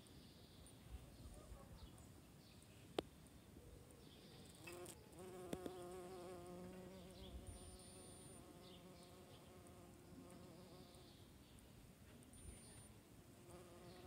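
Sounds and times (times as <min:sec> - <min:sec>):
bumblebee buzzing in flight: 0:04.7 - 0:10.8, 0:13.4 - 0:14.0.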